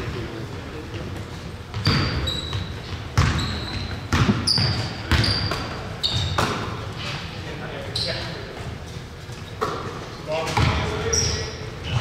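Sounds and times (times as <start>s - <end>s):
sneaker squeaks: 0.8s - 12.0s
basketball bouncing on gym floor: 1.7s - 6.8s, 10.4s - 12.0s.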